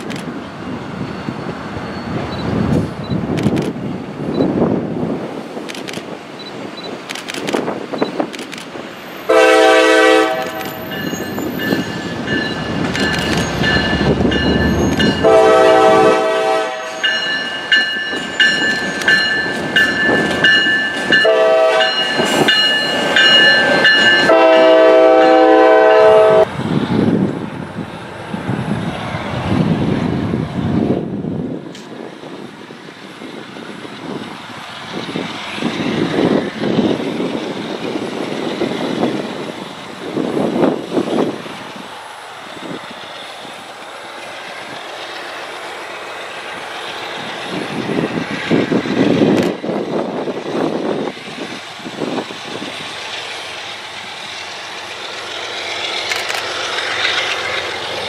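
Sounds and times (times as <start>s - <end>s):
locomotive engine and wheel rumble: 0.0s - 58.0s
locomotive air horn: 9.3s - 10.9s, 15.2s - 17.0s, 21.2s - 22.1s, 24.2s - 26.5s.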